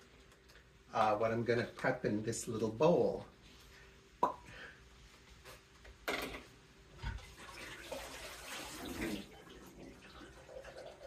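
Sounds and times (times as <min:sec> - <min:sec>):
tap running water: 0:07.0 - 0:11.0.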